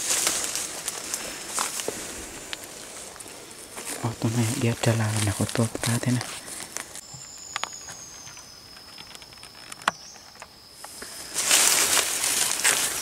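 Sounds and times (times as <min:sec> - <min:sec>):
dry leaves rustling and crackling: 0:00.0 - 0:07.1, 0:11.0 - 0:13.0.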